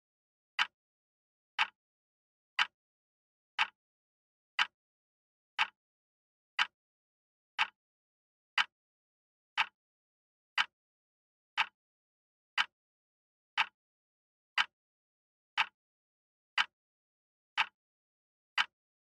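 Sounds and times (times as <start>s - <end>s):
wall clock ticking: 0.6s - 0.8s, 1.6s - 1.8s, 2.6s - 2.8s, 3.6s - 3.8s, 4.6s - 4.8s, 5.6s - 5.8s, 6.6s - 6.8s, 7.6s - 7.8s, 8.6s - 8.8s, 9.6s - 9.8s, 10.6s - 10.8s, 11.6s - 11.8s, 12.6s - 12.8s, 13.6s - 13.8s, 14.6s - 14.8s, 15.6s - 15.8s, 16.6s - 16.8s, 17.6s - 17.8s, 18.6s - 18.8s.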